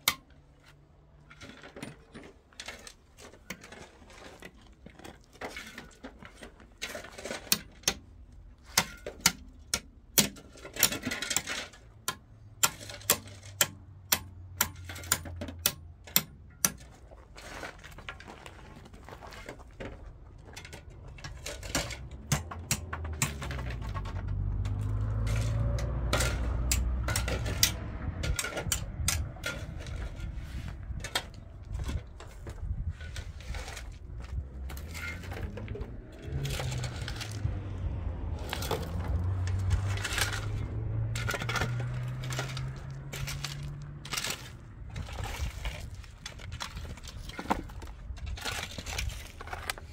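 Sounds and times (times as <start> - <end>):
low rumble: 22.8 - 49.2
metal rake clinking on gravel: 23.2 - 37.5, 38.4 - 49.9.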